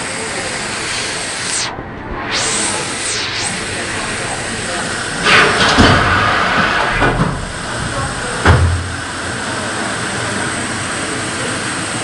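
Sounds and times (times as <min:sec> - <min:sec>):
steam hissing: 0:00.0 - 0:12.0
heavy engine thud: 0:08.3 - 0:08.9.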